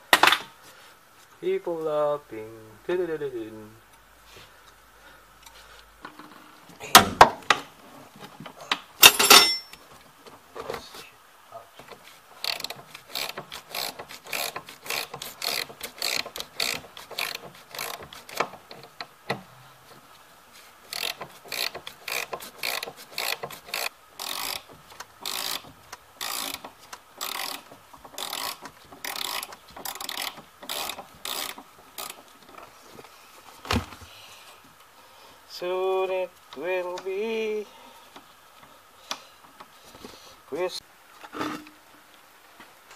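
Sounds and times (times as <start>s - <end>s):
ratchet wrench clicking: 12.4s - 19.1s, 20.9s - 32.3s.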